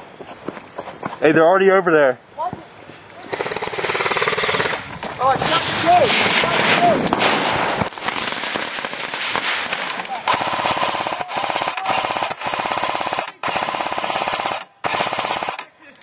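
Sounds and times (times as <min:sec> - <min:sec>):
electric machine gun bursts: 0:03.2 - 0:04.9, 0:10.3 - 0:15.7.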